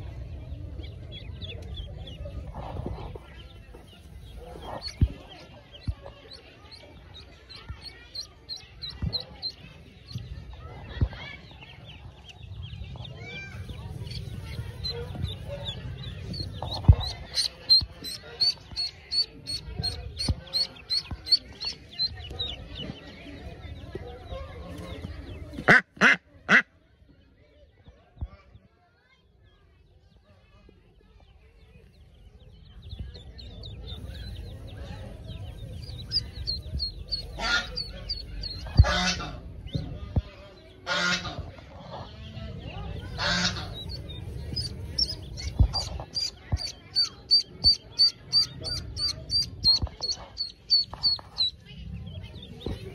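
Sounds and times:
duckling peeping: 0.2s - 10.6s, 11.4s - 24.0s, 31.6s - 40.0s, 40.8s - 52.9s
duck giving harsh raspy calls: 37.2s - 37.9s.

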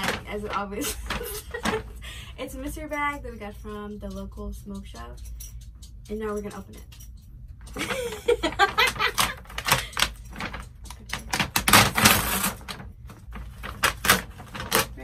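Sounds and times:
paper bag rustling and crinkling: 11.6s - 15.0s.

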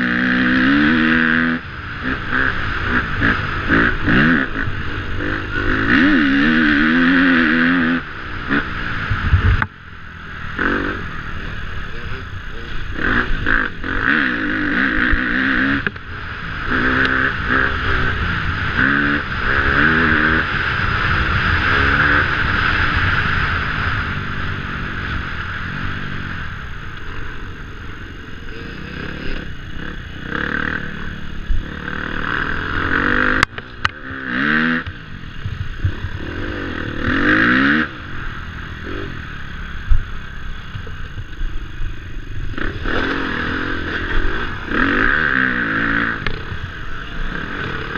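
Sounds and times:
dirt bike engine revving: 0.0s - 47.9s.

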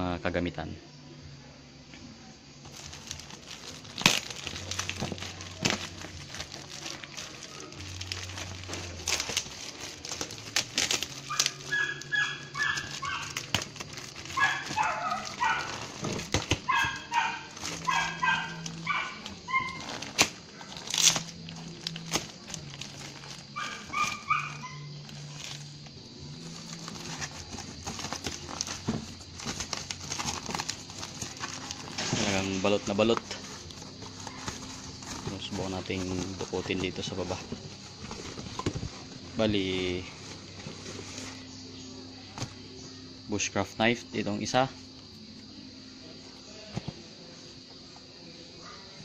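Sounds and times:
faint music: 0.0s - 49.0s
plastic packaging crinkling: 2.6s - 25.8s, 26.4s - 41.5s
dog barking: 11.3s - 13.3s, 14.4s - 15.9s, 16.7s - 19.8s, 23.6s - 24.9s.

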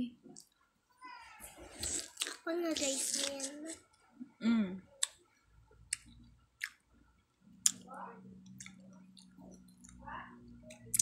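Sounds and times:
person chewing wetly: 1.8s - 3.6s, 5.9s - 6.8s, 10.7s - 11.0s
low steady hum: 2.7s - 11.0s.

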